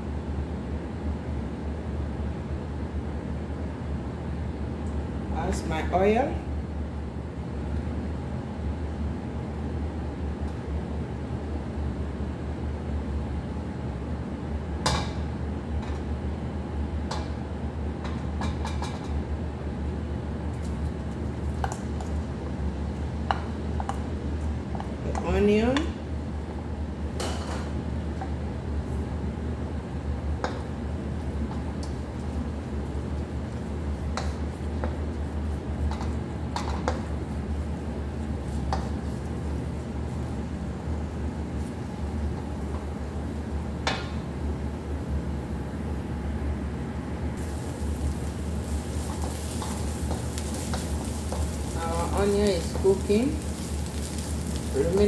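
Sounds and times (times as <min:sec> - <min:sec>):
steady low hum: 0:00.0 - 0:55.0
onions frying: 0:28.8 - 0:46.1, 0:47.3 - 0:55.0
wooden spoon scraping a pan: 0:47.4 - 0:55.0.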